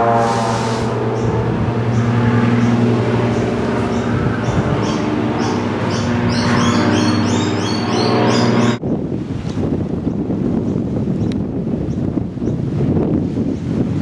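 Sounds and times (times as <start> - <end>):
birds chirping: 0.0 - 9.0
motor engine drone: 0.0 - 9.4.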